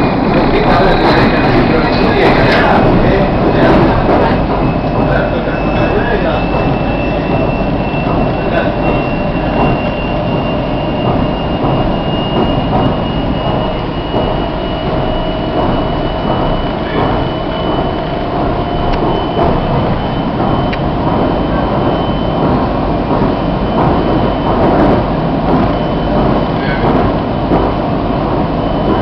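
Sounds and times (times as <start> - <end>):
lower whine rising in pitch: 0.0 - 29.0
thin high whine: 0.0 - 29.0
train wheels rumbling on rail: 0.0 - 29.0.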